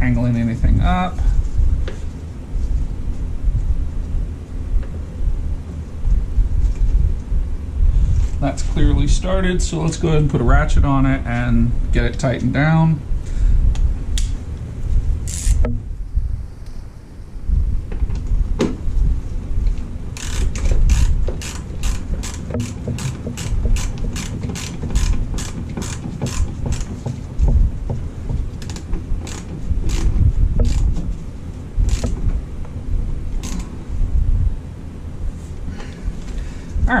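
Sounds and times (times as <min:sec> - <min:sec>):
hand ratchet clicking: 0:15.2 - 0:15.7, 0:20.2 - 0:27.2, 0:28.6 - 0:31.0, 0:31.9 - 0:32.2, 0:33.4 - 0:33.7.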